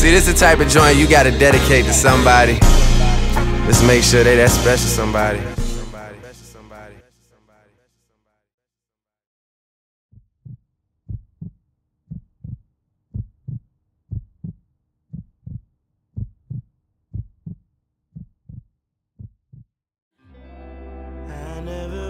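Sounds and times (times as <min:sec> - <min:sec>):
heartbeat thumps: 0:10.4 - 0:15.6, 0:16.2 - 0:17.6, 0:18.2 - 0:18.6, 0:19.2 - 0:19.6.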